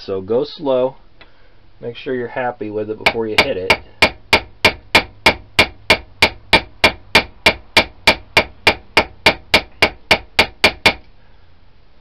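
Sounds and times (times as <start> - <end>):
hammer tapping steel rivet: 3.1 - 11.1.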